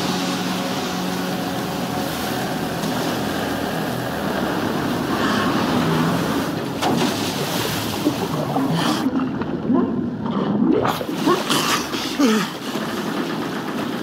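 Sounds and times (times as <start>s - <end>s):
low drone: 0.0s - 14.0s
rough sea waves rushing: 0.0s - 14.0s.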